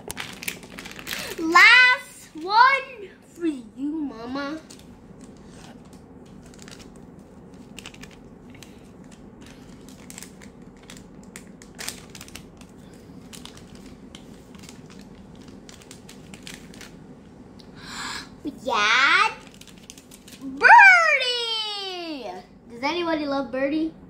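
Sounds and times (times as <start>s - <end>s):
plastic packet crinkling: 0.0s - 2.8s, 4.6s - 17.1s, 19.0s - 20.6s.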